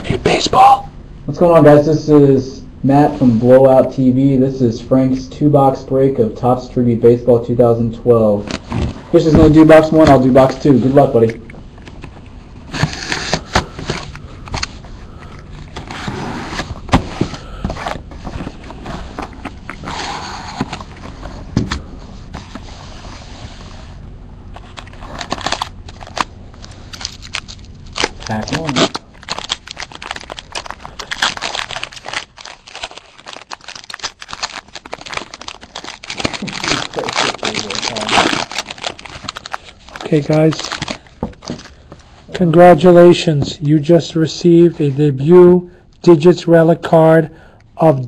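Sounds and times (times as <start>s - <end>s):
foil wrapper crinkling and tearing: 24.6s - 41.8s.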